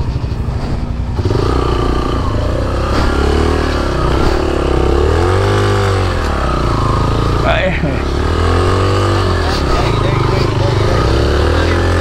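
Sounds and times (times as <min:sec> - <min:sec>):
motorcycle engine revving: 0:00.0 - 0:12.0.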